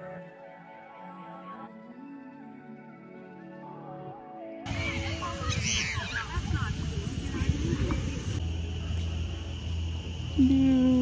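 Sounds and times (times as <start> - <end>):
soft background music: 0.0 - 6.7
low outdoor rumbling: 4.7 - 11.0.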